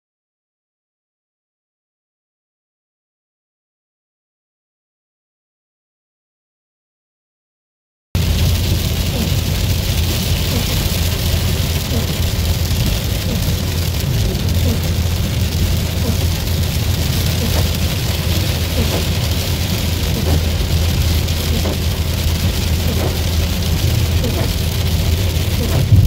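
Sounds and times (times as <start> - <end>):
engine and road noise rumble: 8.2 - 26.0
tyres hissing on wet road: 8.2 - 26.0.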